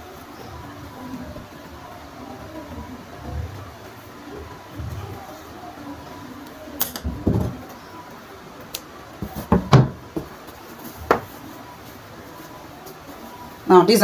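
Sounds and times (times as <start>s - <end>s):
knocks and bumps on table: 9.2s - 10.4s, 11.0s - 11.3s.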